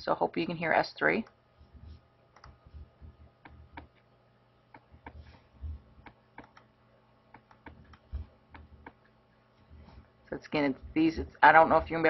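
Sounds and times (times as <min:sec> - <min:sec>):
heartbeat thuds: 0:02.6 - 0:03.9, 0:04.8 - 0:06.2, 0:07.6 - 0:09.0.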